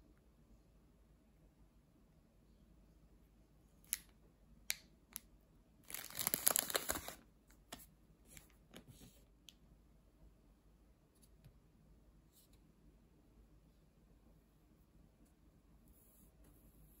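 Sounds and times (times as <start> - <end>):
plastic wrapper crinkling: 5.8 - 7.3.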